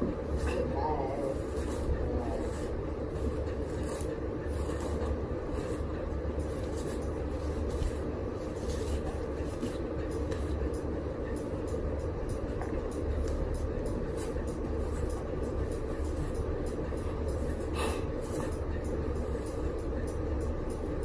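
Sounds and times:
hair rustling and rubbing: 0:00.0 - 0:10.6
steady low rumble: 0:00.0 - 0:21.0.

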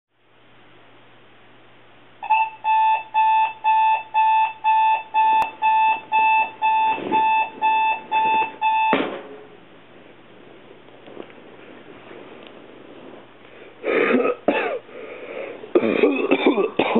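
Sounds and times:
alarm clock beeping: 0:02.2 - 0:09.0
sharp thump: 0:08.9 - 0:09.4
rustling: 0:09.9 - 0:13.8.

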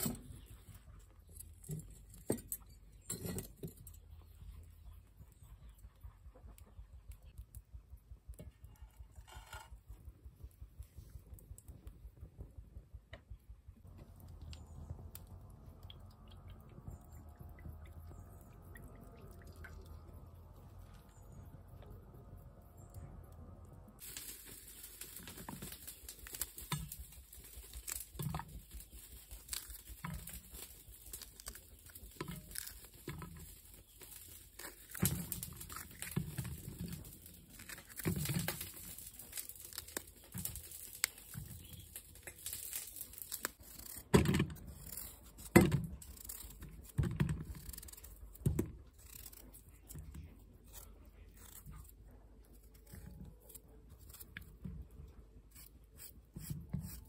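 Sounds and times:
knife cutting chili peppers: 0:55.5 - 0:57.0.

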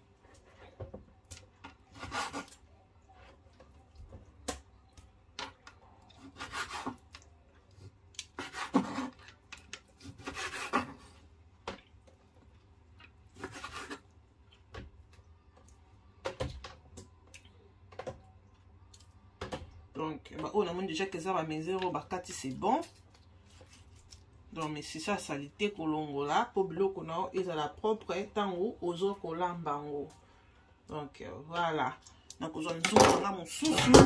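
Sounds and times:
knife slicing scrapes: 0:01.9 - 0:02.6, 0:06.2 - 0:07.0, 0:08.2 - 0:09.2, 0:10.0 - 0:11.2, 0:13.4 - 0:14.1.

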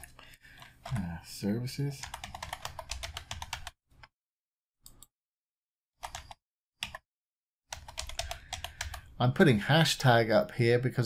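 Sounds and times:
typing on computer keyboard: 0:02.0 - 0:03.8, 0:06.0 - 0:07.0, 0:07.7 - 0:09.0.

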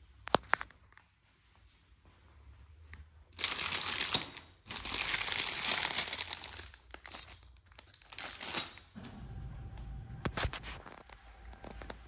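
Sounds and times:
foil packets crinkling: 0:03.4 - 0:09.0.

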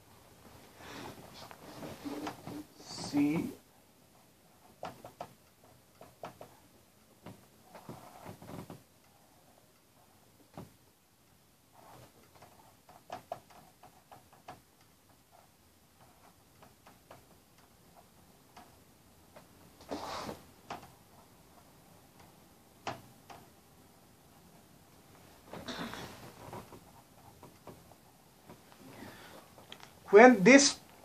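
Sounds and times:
marker writing on whiteboard: 0:07.3 - 0:08.4, 0:11.7 - 0:17.3.

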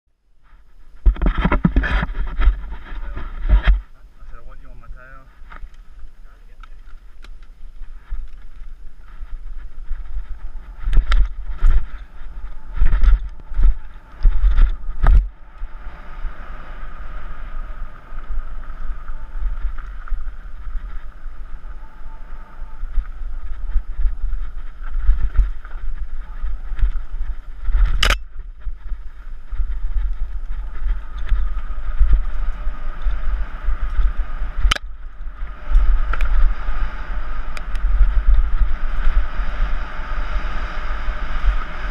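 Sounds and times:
bike tyres rumbling on gravel: 0:00.4 - 0:41.9
wind buffeting microphone: 0:00.8 - 0:41.9
sharp clicks: 0:27.8 - 0:28.3.

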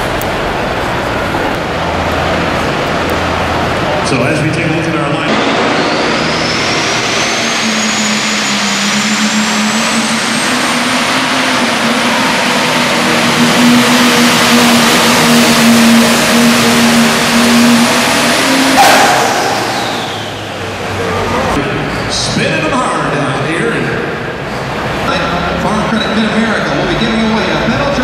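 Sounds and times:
diesel engine at full power: 0:00.0 - 0:28.0
sudden engine burst: 0:04.9 - 0:22.0
high whine climbing in pitch: 0:05.1 - 0:21.7.

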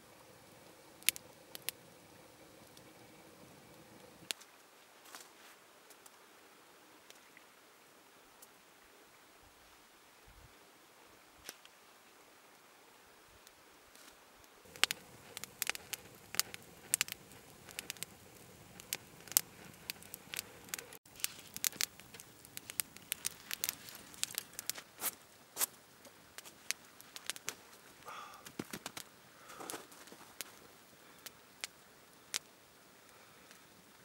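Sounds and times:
campfire crackling and popping: 0:00.0 - 0:04.5, 0:13.4 - 0:34.0.

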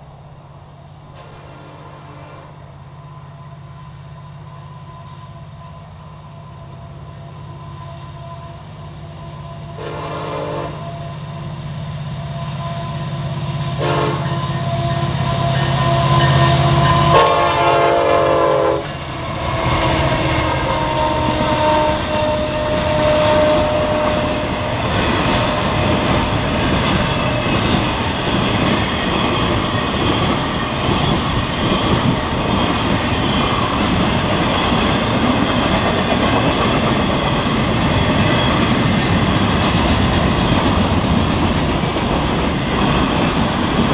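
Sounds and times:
locomotive engines droning: 0:00.0 - 0:43.9
train horn blasts: 0:01.2 - 0:25.8
train wheels clacking on rail: 0:09.6 - 0:43.9.

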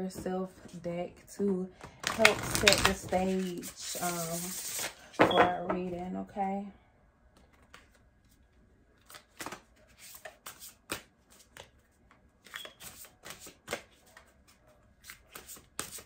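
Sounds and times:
playing cards shuffled by hand: 0:02.1 - 0:05.0, 0:07.4 - 0:08.4, 0:09.0 - 0:16.0.

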